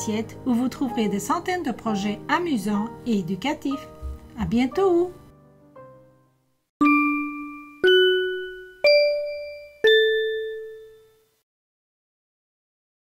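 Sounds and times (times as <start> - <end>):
four-note chime jingle: 6.8 - 11.3.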